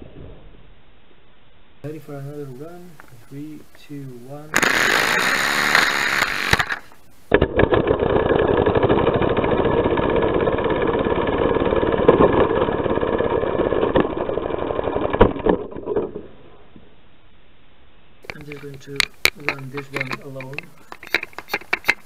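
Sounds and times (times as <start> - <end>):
toy car air engine chatter: 4.6 - 7.0, 18.2 - 22.0.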